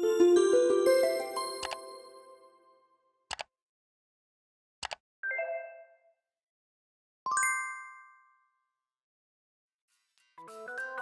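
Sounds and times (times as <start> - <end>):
mouse clicks: 3.3 - 3.5, 4.8 - 5.0.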